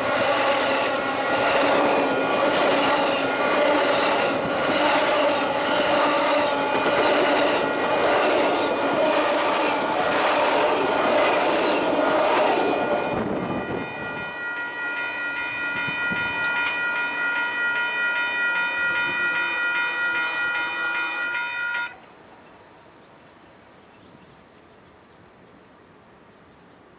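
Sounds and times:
locomotive horn: 0:00.0 - 0:10.0, 0:12.3 - 0:17.0, 0:17.6 - 0:21.9
train cars rumbling and clattering: 0:00.0 - 0:21.9.

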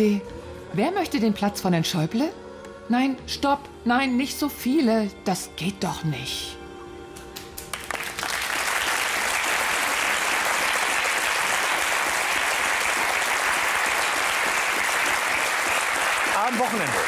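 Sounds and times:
studio audience applauding: 0:07.4 - 0:17.0.

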